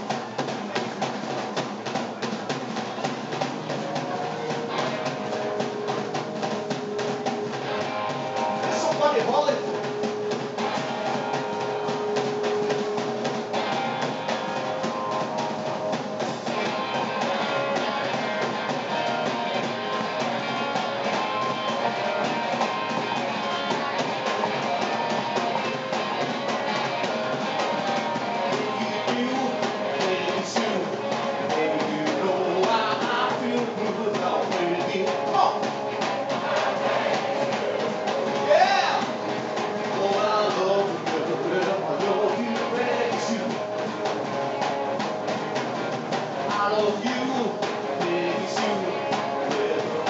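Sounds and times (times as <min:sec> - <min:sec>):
rock and roll band playing: 0:00.0 - 0:50.0
person singing: 0:27.5 - 0:39.2, 0:39.9 - 0:44.0, 0:46.4 - 0:50.0.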